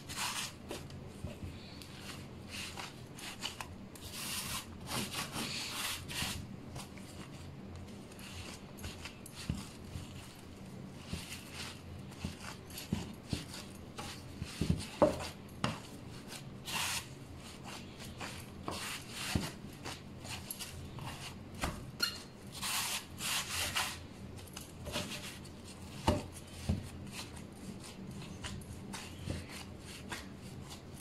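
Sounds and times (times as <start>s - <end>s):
hands rubbing bread dough: 0.0s - 31.0s.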